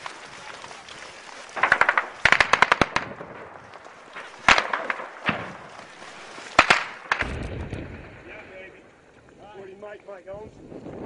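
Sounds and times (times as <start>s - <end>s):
automatic gunfire bursts: 1.6s - 3.2s, 6.6s - 7.3s.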